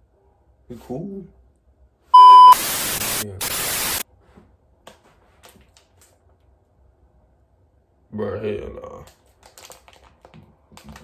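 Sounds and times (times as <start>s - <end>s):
loud beep tone: 2.2s - 4.0s
loud static hiss: 2.2s - 4.0s.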